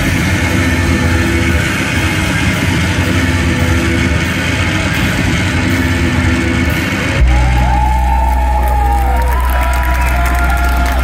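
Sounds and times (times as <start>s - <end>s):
deep bass note with sliding tones: 0.0s - 11.0s
electric guitars wall of sound: 0.0s - 11.0s
sustained low bass: 0.0s - 11.0s.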